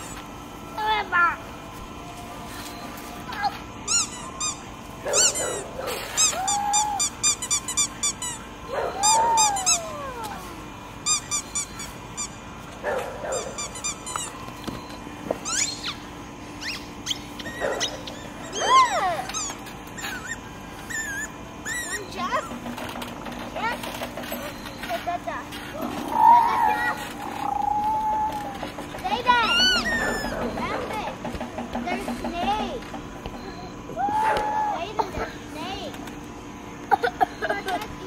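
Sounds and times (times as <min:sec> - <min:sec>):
rubber squeaky ball squeaking: 0:03.9 - 0:05.4, 0:11.0 - 0:12.4, 0:13.3 - 0:22.6, 0:29.2 - 0:30.8.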